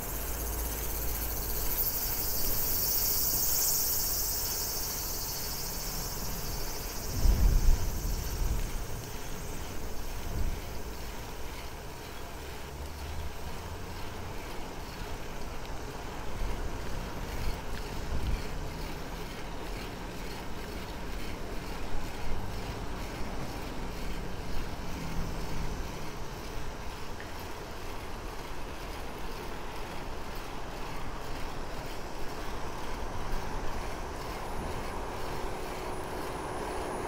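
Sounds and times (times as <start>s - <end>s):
wind noise on microphone: 6.4s - 11.0s, 16.9s - 18.9s.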